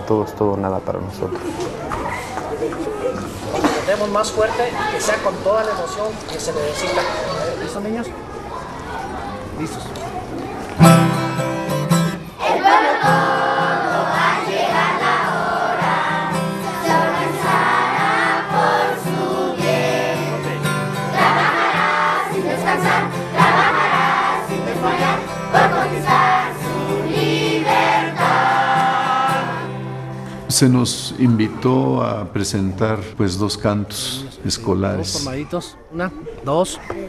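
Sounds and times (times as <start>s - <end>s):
acoustic guitar: 10.7s - 33.1s
children singing together: 12.4s - 30.0s.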